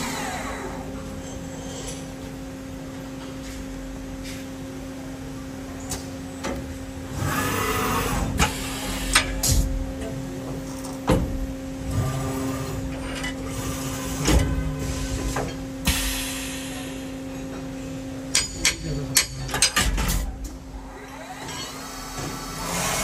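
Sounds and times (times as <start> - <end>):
hiss: 15.9 - 17.1.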